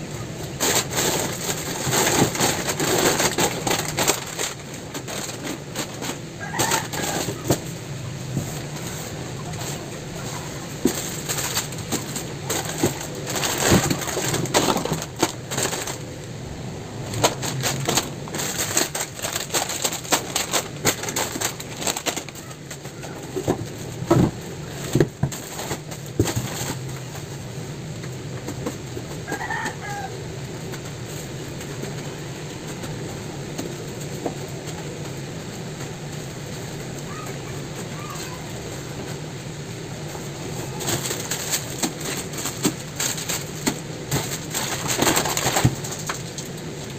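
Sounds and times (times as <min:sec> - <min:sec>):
low steady hum: 0:00.0 - 0:46.9
plastic packets crinkling: 0:00.4 - 0:07.8, 0:08.6 - 0:16.4, 0:17.0 - 0:27.3, 0:39.9 - 0:46.9.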